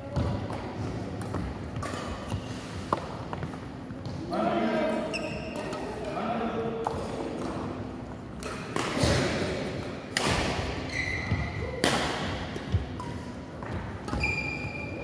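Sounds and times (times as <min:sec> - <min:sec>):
rackets hitting shuttlecock: 0:01.2 - 0:03.5, 0:06.7 - 0:15.0
shoes squeaking on court: 0:05.0 - 0:05.9, 0:10.8 - 0:11.6, 0:12.8 - 0:15.0.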